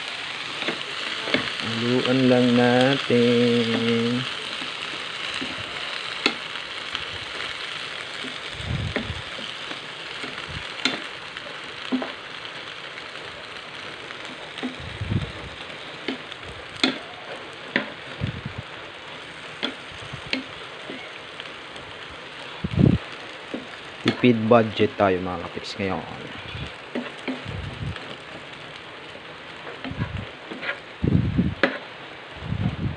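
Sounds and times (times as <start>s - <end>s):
cabbage sizzling in a frying pan: 0.0s - 32.9s
wooden spatula scraping a pan: 29.6s - 30.9s.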